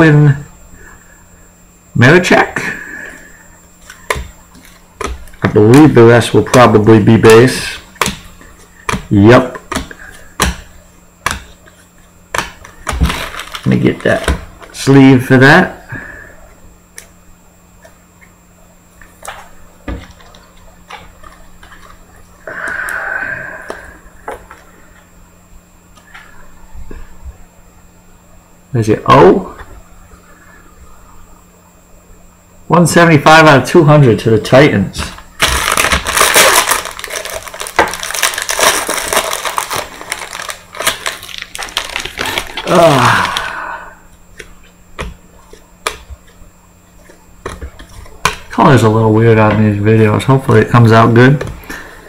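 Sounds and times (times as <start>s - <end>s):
plastic wrapper crinkling: 11.4s - 14.8s, 35.2s - 43.5s.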